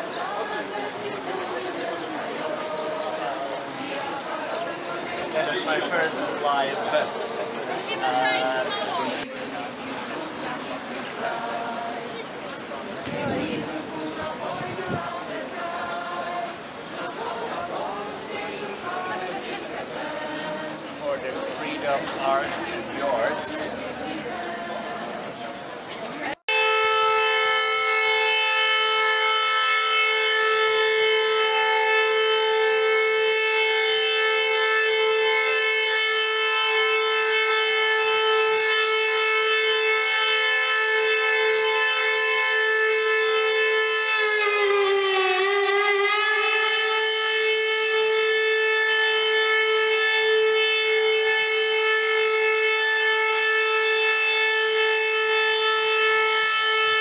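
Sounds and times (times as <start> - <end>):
siren steady tone: 26.2 - 57.0.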